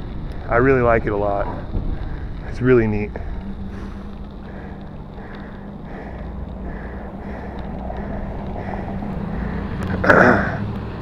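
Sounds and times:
wind on microphone: 0:00.0 - 0:04.3
traffic noise: 0:00.0 - 0:11.0
loud vehicle passing: 0:01.5 - 0:11.0.

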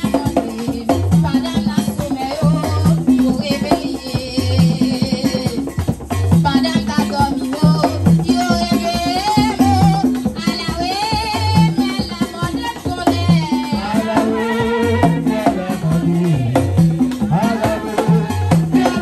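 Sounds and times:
shaken rattle: 0:00.0 - 0:14.2
person singing: 0:13.0 - 0:19.0.

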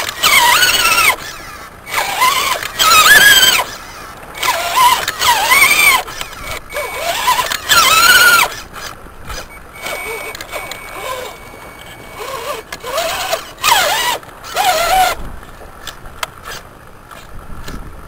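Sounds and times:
electric motor whining in bursts: 0:00.0 - 0:17.8.

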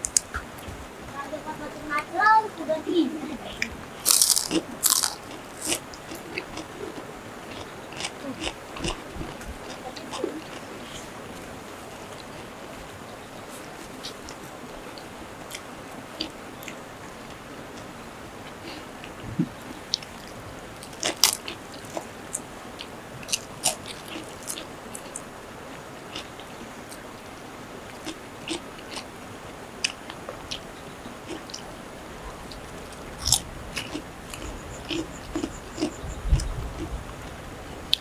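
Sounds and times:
crunchy food chewing: 0:04.0 - 0:12.4, 0:19.9 - 0:25.3, 0:26.1 - 0:27.0, 0:27.9 - 0:29.1, 0:29.8 - 0:37.0.

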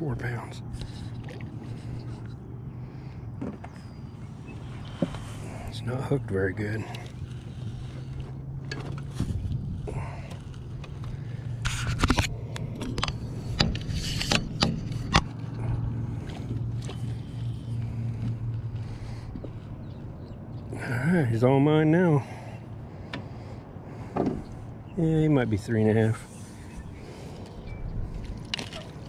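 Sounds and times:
steady low hum: 0:00.0 - 0:29.0
metal handle scraping on boat: 0:11.6 - 0:15.6.

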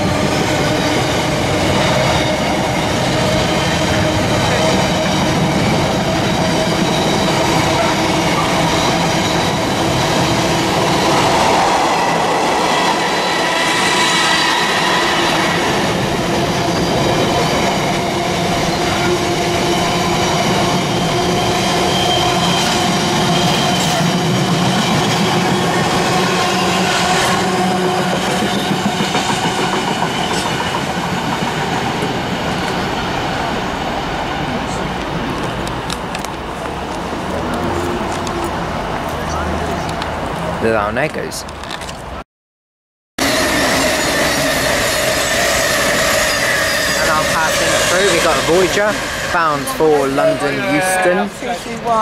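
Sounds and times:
train wheels squealing: 0:00.0 - 0:33.2, 0:43.2 - 0:51.3.

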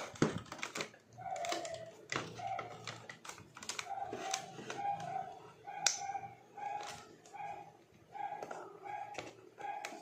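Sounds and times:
plastic parts clicking and rattling: 0:00.0 - 0:06.0, 0:06.6 - 0:07.6.

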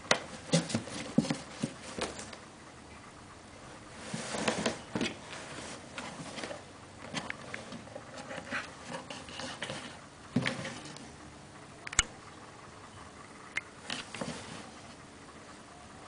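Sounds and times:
cardboard box scraping and rustling: 0:00.4 - 0:02.4, 0:03.9 - 0:11.0, 0:13.9 - 0:15.0.

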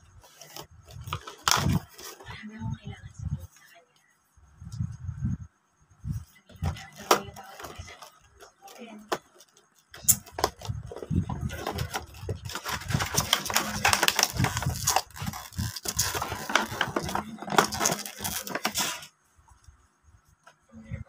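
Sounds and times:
plastic tray creaking and rustling: 0:00.2 - 0:02.6, 0:06.4 - 0:19.1.

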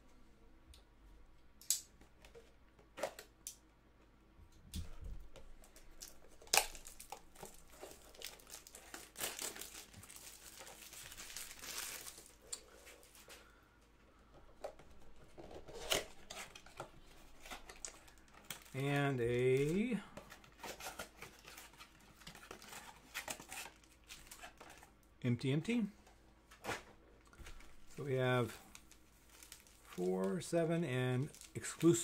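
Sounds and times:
cellophane crinkling and tearing: 0:05.6 - 0:13.4, 0:15.3 - 0:24.9, 0:28.4 - 0:32.0.

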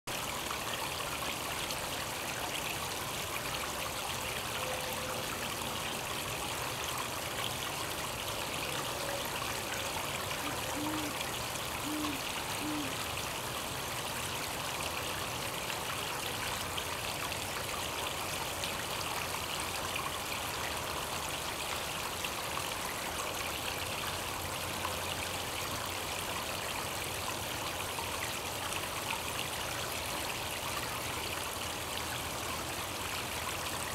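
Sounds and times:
pool waterfall rushing: 0:00.1 - 0:33.9
owl hooting: 0:10.4 - 0:11.2, 0:11.8 - 0:13.0.

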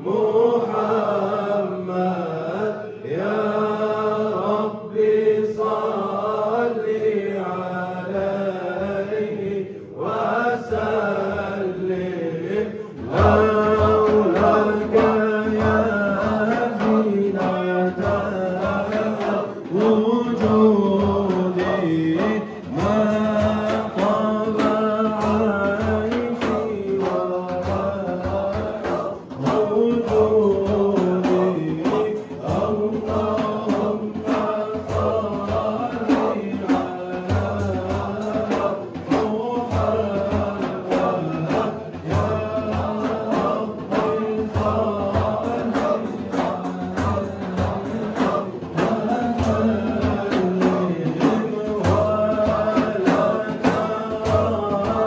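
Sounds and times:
chanting in sustained notes: 0:00.0 - 0:55.0
fast rhythmic percussion: 0:00.0 - 0:55.0.

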